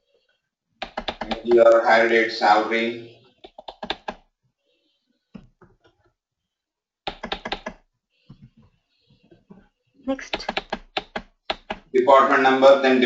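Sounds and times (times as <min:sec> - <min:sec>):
keyboard typing clicks: 0:00.8 - 0:01.8, 0:03.4 - 0:04.2, 0:07.1 - 0:07.8, 0:10.2 - 0:11.9.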